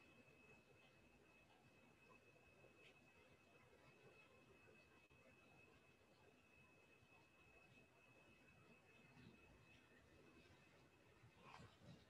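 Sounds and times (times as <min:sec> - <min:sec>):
faint high-pitched whine: 0:00.0 - 0:12.0.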